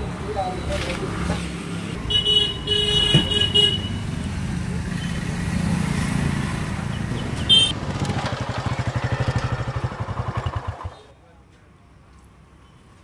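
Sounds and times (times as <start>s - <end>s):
motorcycle engine running: 7.5s - 11.1s.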